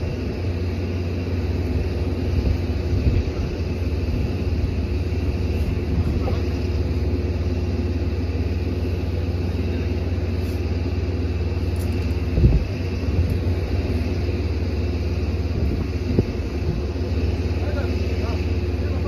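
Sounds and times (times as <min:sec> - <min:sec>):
engine rumbling: 0:00.0 - 0:19.0
faint steady hum: 0:00.0 - 0:19.0.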